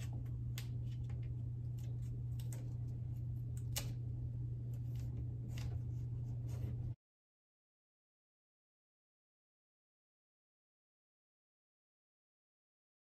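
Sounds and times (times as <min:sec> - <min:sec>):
steady low hum: 0:00.0 - 0:07.0.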